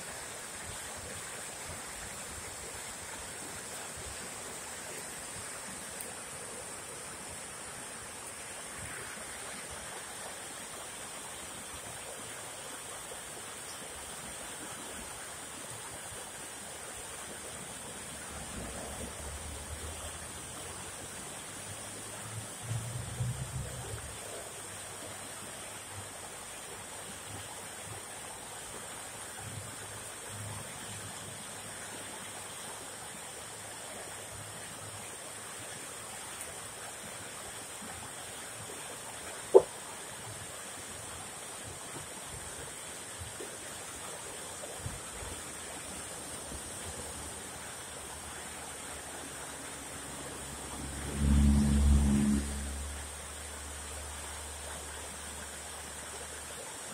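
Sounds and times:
stream rushing: 0.0s - 56.9s
low rumble: 50.8s - 53.0s.

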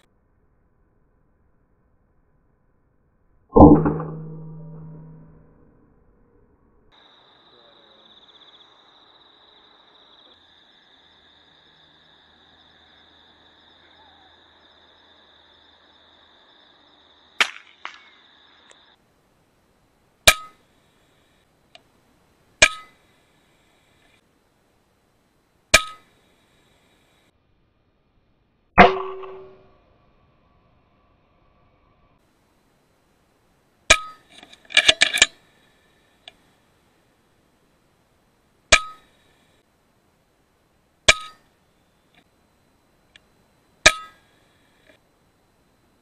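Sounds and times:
crickets trilling: 6.9s - 27.3s, 30.0s - 46.0s
air rifle cracks: 17.4s - 18.2s.

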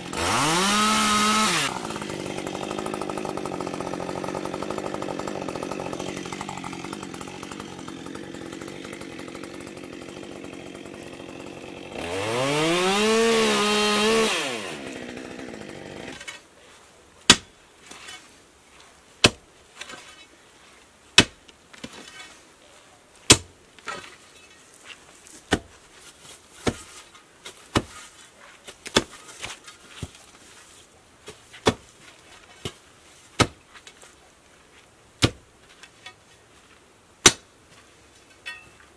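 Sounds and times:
chainsaw idling and revving: 0.0s - 16.3s
digging bar striking frozen ground: 16.0s - 16.5s, 17.2s - 18.2s, 19.2s - 20.3s, 21.1s - 22.4s, 23.2s - 30.4s, 31.2s - 34.0s, 35.2s - 36.2s, 37.2s - 37.6s.

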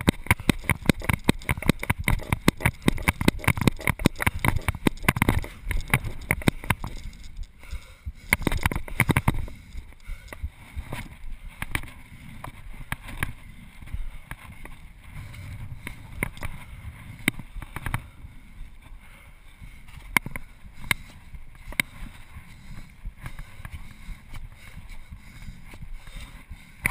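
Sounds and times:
camera handling noise: 0.0s - 7.6s, 8.2s - 13.4s, 15.8s - 18.0s
wind rumble on microphone: 0.0s - 18.9s.

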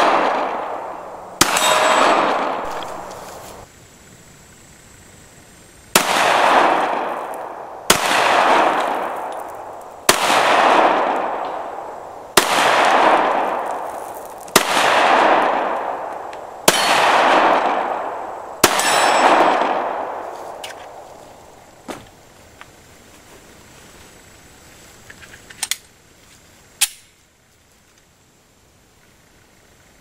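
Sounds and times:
pistol shots with echo: 0.0s - 3.5s, 6.0s - 21.0s.

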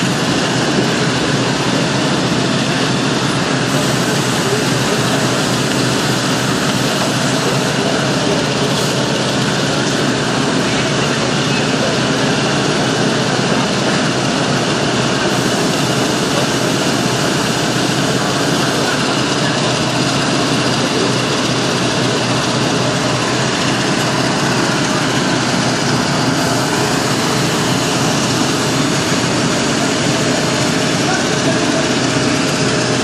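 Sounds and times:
fire truck engine running: 0.0s - 33.0s
loud even hiss: 3.6s - 7.8s, 15.2s - 19.2s.

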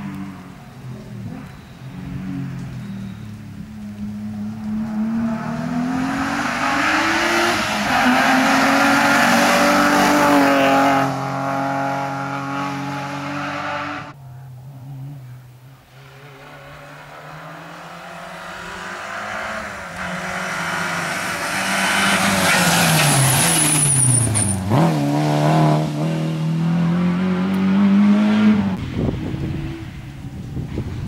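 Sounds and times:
rally car engine at high revs: 4.0s - 14.2s, 16.1s - 23.9s, 24.6s - 31.0s.

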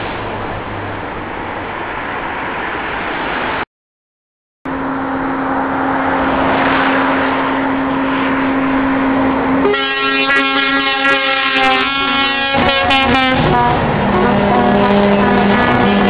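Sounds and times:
lorries driving past: 0.0s - 3.6s, 4.7s - 16.0s
long steady horn note: 9.6s - 16.0s.

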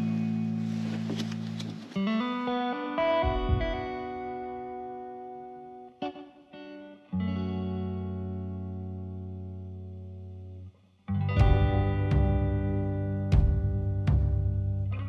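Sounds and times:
short plucked notes: 3.0s - 4.8s.

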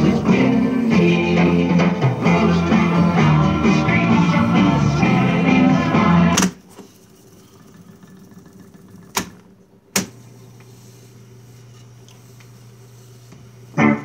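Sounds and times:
quiet mechanical running: 4.7s - 14.0s
tape deck controls clunking: 6.3s - 6.7s, 9.0s - 10.2s.

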